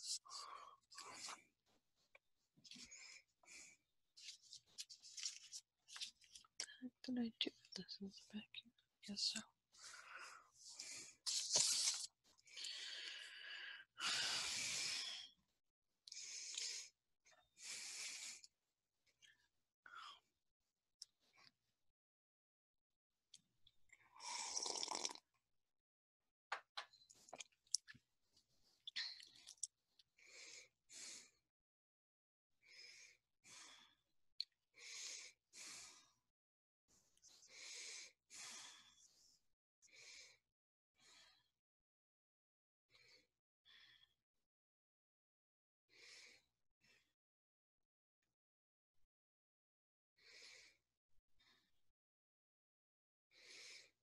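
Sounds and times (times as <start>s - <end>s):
person breathing faintly: 12.5s - 15.3s.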